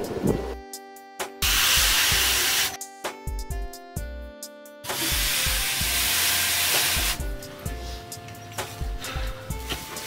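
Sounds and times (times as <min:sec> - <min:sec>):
plucked string music with beat: 0:00.0 - 0:01.4, 0:02.8 - 0:05.2, 0:07.1 - 0:10.0
hot steel quenching hiss: 0:01.4 - 0:02.8.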